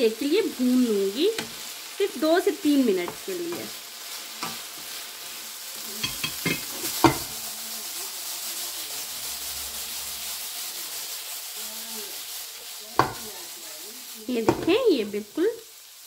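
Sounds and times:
chicken sizzling in frying pan: 0.0s - 16.0s
wooden spatula knocking on pan: 13.0s - 13.3s, 14.4s - 14.8s.

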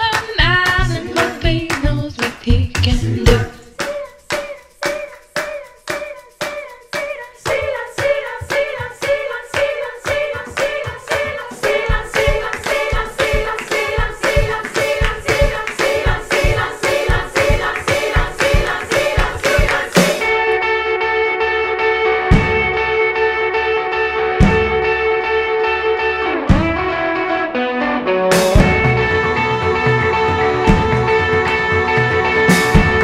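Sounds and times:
steady handclaps: 0.0s - 20.4s
layered singing voices: 0.9s - 20.6s.

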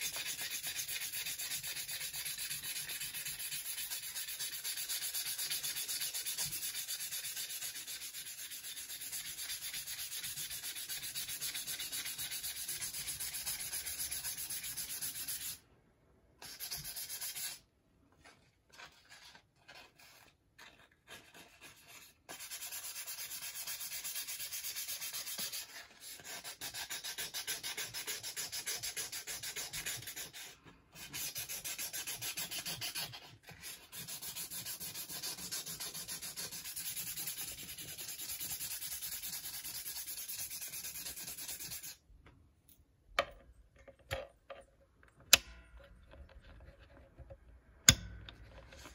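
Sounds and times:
sandpaper scratching on metal: 0.0s - 15.6s, 16.4s - 17.6s, 21.4s - 42.0s.

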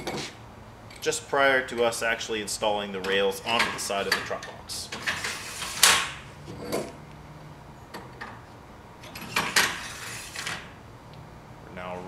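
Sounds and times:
metal sliding scraping clatter: 3.6s - 7.0s, 9.0s - 10.7s.

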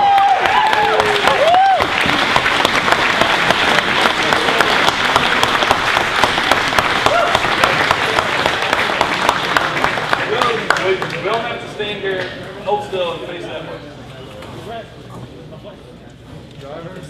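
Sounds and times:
crowd applauding: 0.0s - 11.5s.

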